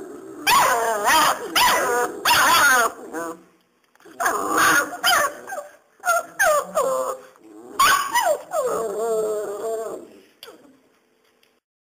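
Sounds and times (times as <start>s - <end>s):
puppy whining: 4.2s - 10.8s
puppies whimpering and yelping: 4.8s - 10.0s.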